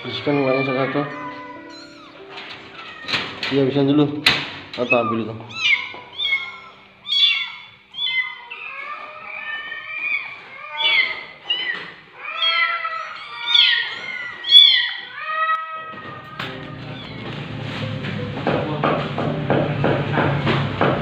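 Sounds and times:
kittens meowing: 0:00.0 - 0:03.5, 0:04.8 - 0:17.4.

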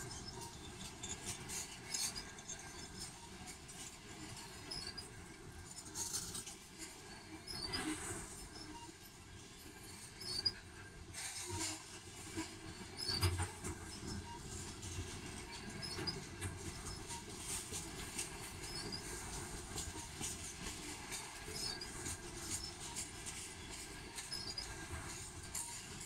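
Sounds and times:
train wheels rumbling on rail: 0:09.6 - 0:26.0.

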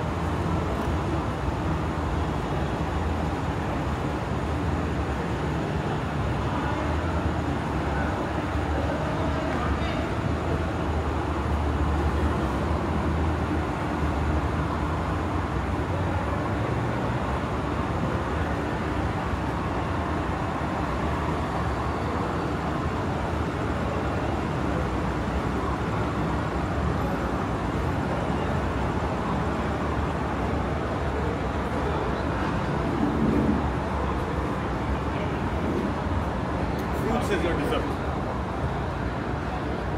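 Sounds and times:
road traffic running by: 0:00.0 - 0:39.9.

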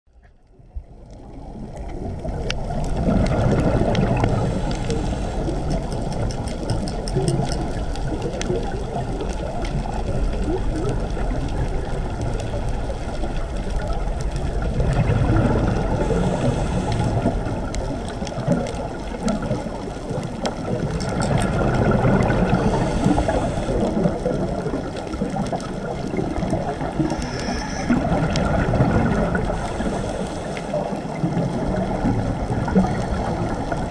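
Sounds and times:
dull underwater noise: 0:00.1 - 0:33.9
exhaled bubbles gurgling: 0:00.4 - 0:33.9
scuba regulator breathing: 0:04.2 - 0:06.7, 0:15.8 - 0:17.7, 0:22.3 - 0:24.3, 0:26.9 - 0:28.5, 0:29.2 - 0:31.2.

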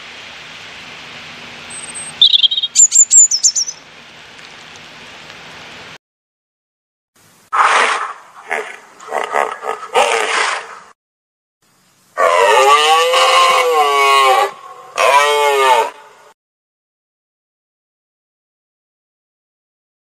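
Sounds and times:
robin chirping and trilling: 0:01.7 - 0:03.8
rhinoceros harsh raspy call: 0:07.9 - 0:10.7, 0:12.2 - 0:16.3.

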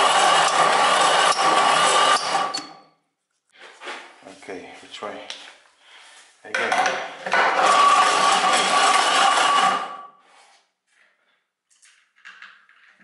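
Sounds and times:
electric drill cranking engine: 0:00.0 - 0:02.6, 0:07.3 - 0:10.0.

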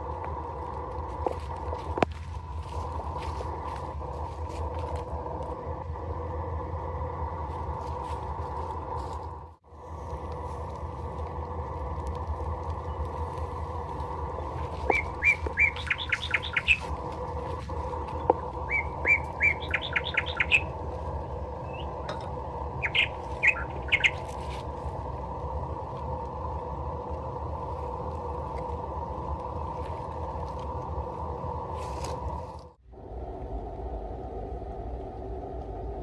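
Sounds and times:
low background hum: 0:00.0 - 0:36.0
bird chirping: 0:12.7 - 0:24.6.

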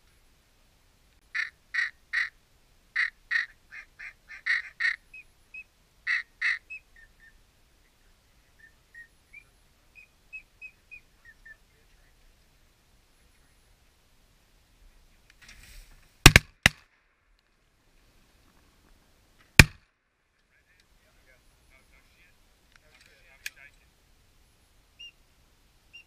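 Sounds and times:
duck quacking: 0:01.3 - 0:02.4, 0:03.0 - 0:05.0, 0:06.1 - 0:06.8.

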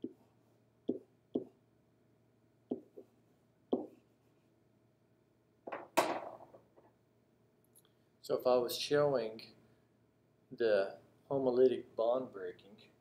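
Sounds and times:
pen tapping on whiteboard: 0:00.0 - 0:00.2, 0:00.9 - 0:01.6, 0:02.7 - 0:03.1, 0:03.7 - 0:04.0.

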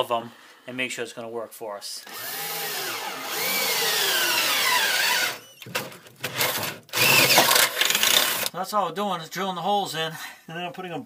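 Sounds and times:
cordless drill boring into steel: 0:02.1 - 0:05.6, 0:06.4 - 0:08.5.

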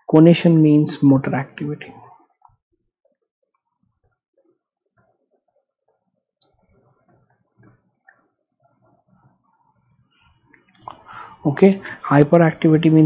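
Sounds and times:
stylus tapping tablet screen: 0:02.0 - 0:10.9.

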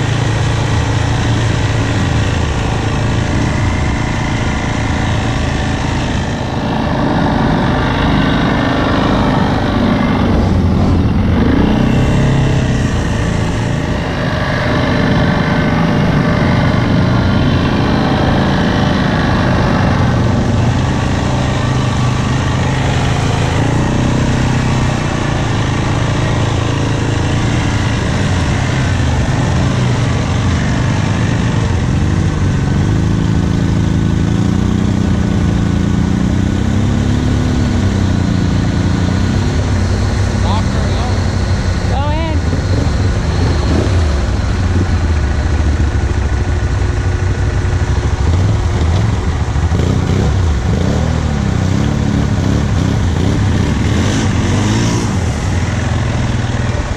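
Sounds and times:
atv engine revving: 0:00.0 - 0:56.9.

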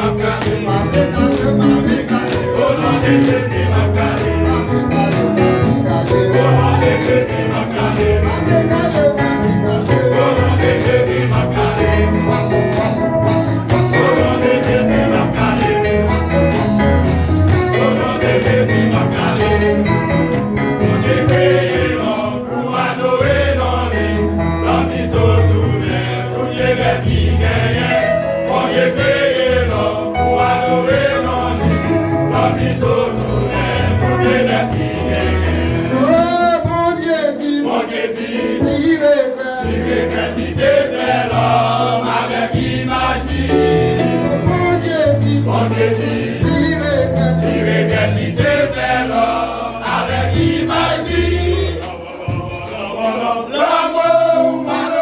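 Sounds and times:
live band playing: 0:00.0 - 0:55.0
men singing gospel: 0:00.0 - 0:55.0.

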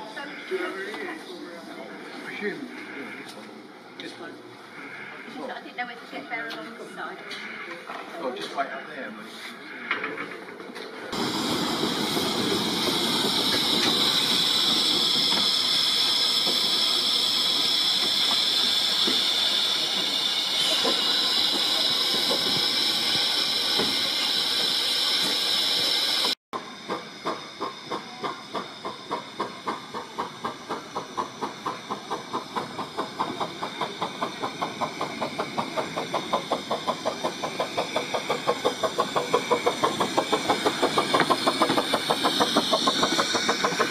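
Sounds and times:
steam hissing from locomotive: 0:04.6 - 0:43.9
steam locomotive exhaust beats: 0:11.1 - 0:43.9.

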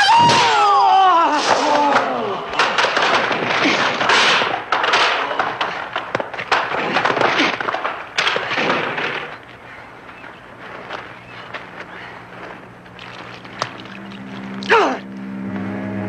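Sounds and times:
low steady hum: 0:00.0 - 0:16.0
folding chairs crashing and clattering: 0:01.4 - 0:09.5.

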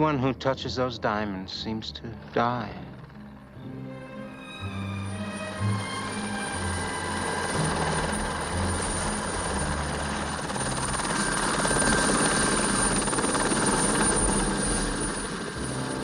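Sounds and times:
helicopter rotor and engine: 0:00.0 - 0:16.0.

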